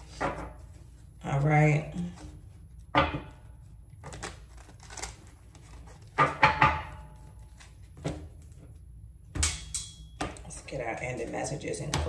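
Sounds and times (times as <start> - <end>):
cards shuffling: 4.0 - 6.2.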